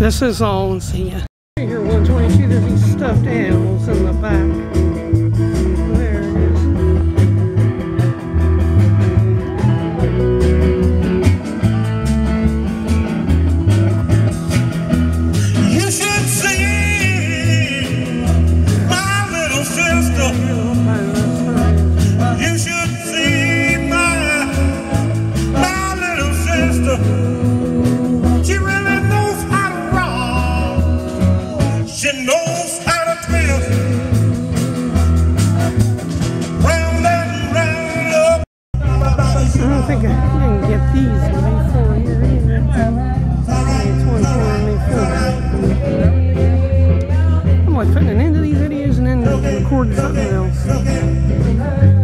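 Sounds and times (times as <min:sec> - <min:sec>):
band music with bass and drums: 0:00.0 - 0:52.0
person singing: 0:15.3 - 0:35.2, 0:36.6 - 0:52.0.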